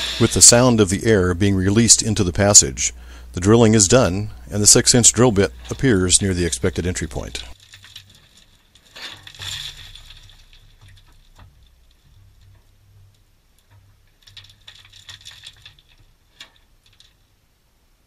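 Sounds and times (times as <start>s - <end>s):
drill rumbling: 0.0s - 16.0s
debris falling and pattering: 4.6s - 17.4s.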